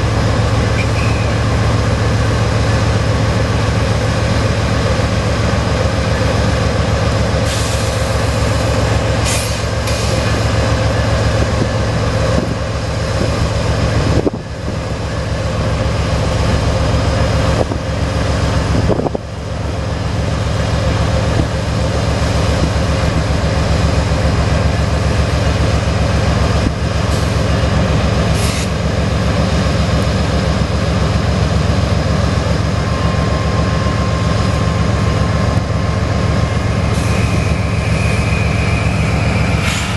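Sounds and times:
diesel locomotive engine drone: 0.0 - 39.9
short high hisses: 39.4 - 39.9.

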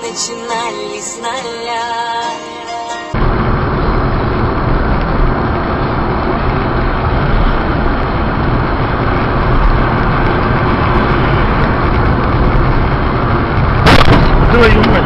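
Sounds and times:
car engine: 3.1 - 15.0.

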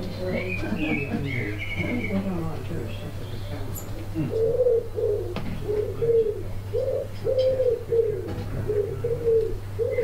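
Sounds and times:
steady low hum: 0.0 - 10.0
pigeon cooing: 3.4 - 10.0.

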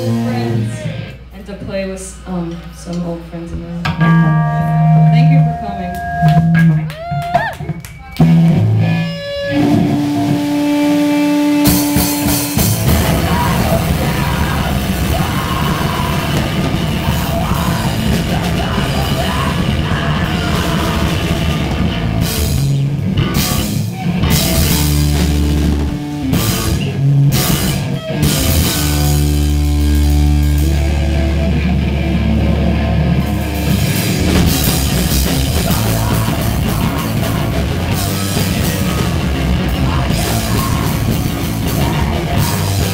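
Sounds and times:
punk band playing live: 0.0 - 42.9
drum kit: 3.5 - 42.9
single held note ringing: 3.9 - 6.9.

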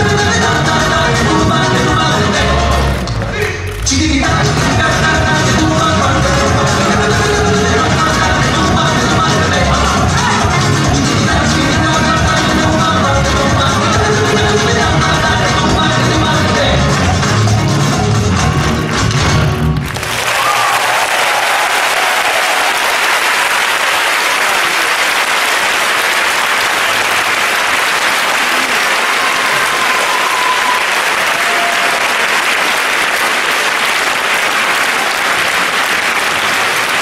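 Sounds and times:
large audience applauding: 14.0 - 37.0.

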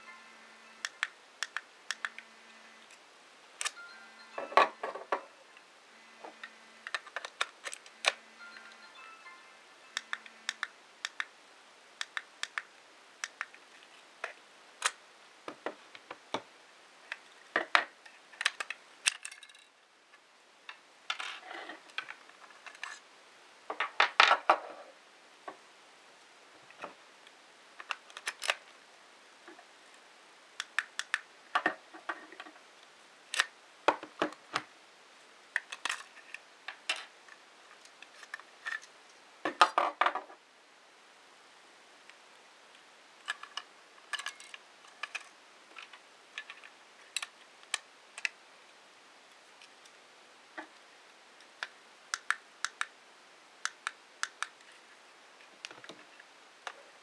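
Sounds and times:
plastic devices clicking on wood: 30.6 - 31.8, 51.5 - 52.9, 53.6 - 54.6.

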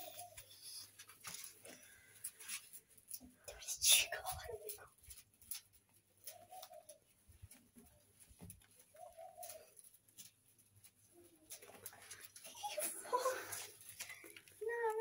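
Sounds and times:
dove cooing: 0.0 - 1.0, 6.2 - 7.1, 8.8 - 9.9.

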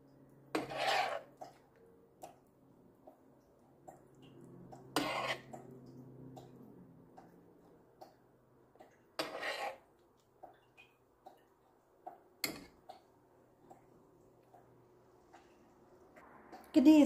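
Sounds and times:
metal spoon scraping a skillet: 0.5 - 1.7, 4.8 - 5.7, 8.8 - 9.9.

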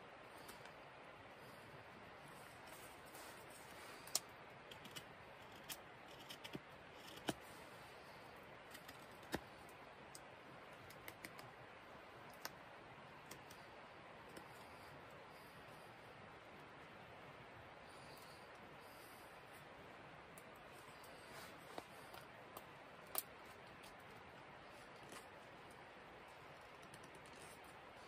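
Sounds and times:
faint steady hiss: 0.0 - 28.0.

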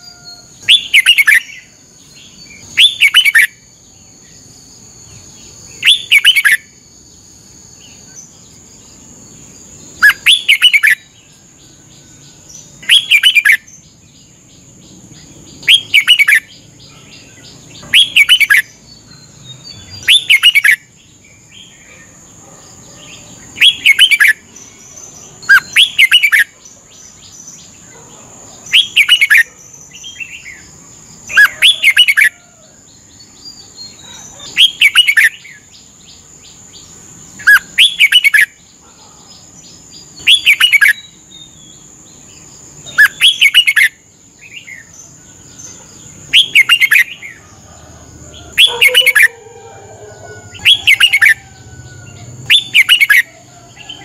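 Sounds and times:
bird singing whistled phrases: 0.0 - 1.7, 2.7 - 3.6, 5.8 - 6.6, 10.0 - 11.0, 12.8 - 13.7, 15.6 - 16.5, 17.8 - 18.7, 19.9 - 20.8, 28.8 - 29.4, 52.5 - 53.3.

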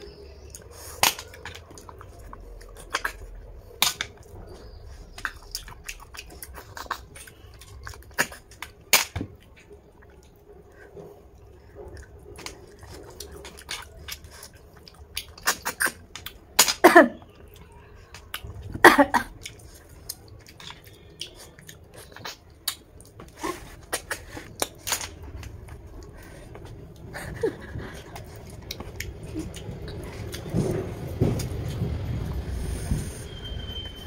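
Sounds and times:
chewing: 0.0 - 33.2.

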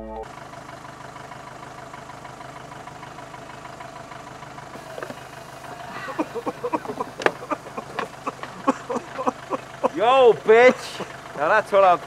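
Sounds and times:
vehicle engine idling: 0.0 - 12.0
clunk: 4.8 - 9.0.

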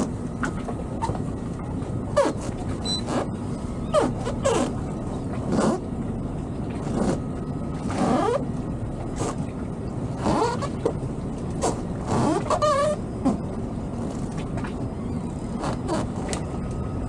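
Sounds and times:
low engine rumble: 0.0 - 17.0
rubber fenders squeaking: 2.1 - 4.9, 5.5 - 5.9, 7.9 - 8.5, 10.2 - 11.0, 11.6 - 14.3, 14.9 - 16.6.

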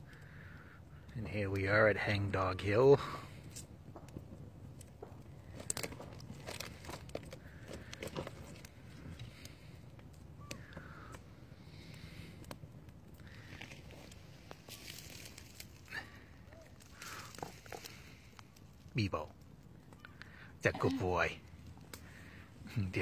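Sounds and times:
campfire crackling: 0.0 - 23.0.

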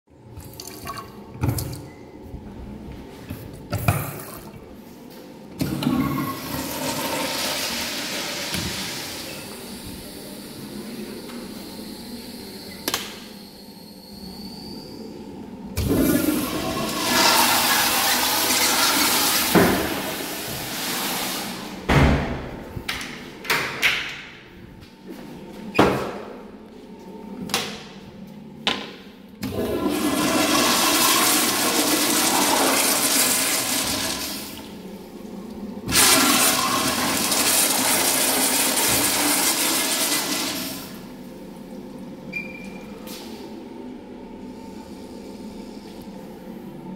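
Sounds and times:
toilet flushing: 0.3 - 1.9, 5.6 - 12.7, 15.8 - 21.9, 29.4 - 41.2.

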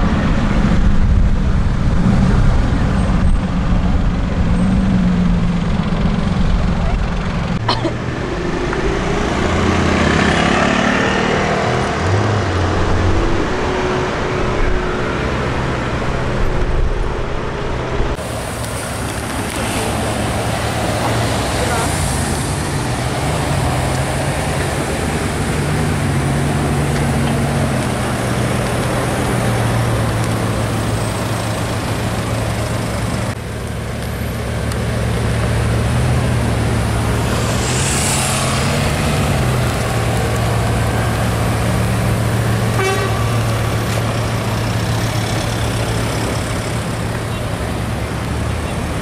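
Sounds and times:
car engine droning: 0.0 - 49.0
short turbo hiss: 36.7 - 40.1.

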